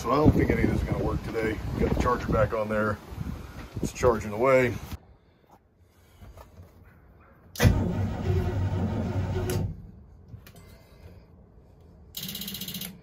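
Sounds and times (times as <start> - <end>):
starter cranking engine: 7.6 - 9.8.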